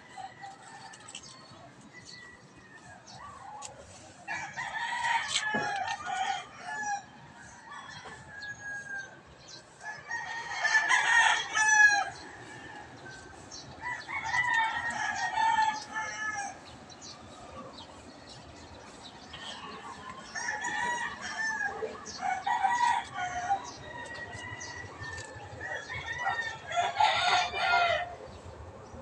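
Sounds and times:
rooster crowing: 4.3 - 9.2, 9.8 - 16.6, 20.3 - 28.2.

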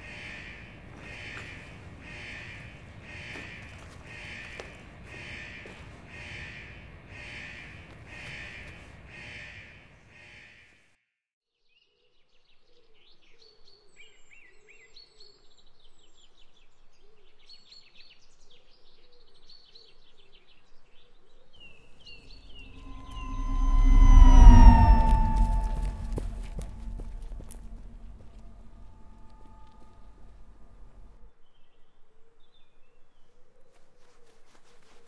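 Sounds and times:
crows cawing: 0.0 - 10.4
songbirds chirping and twittering: 0.0 - 10.4
loud tone: 22.3 - 31.1
low warbling bird call: 22.3 - 31.1.

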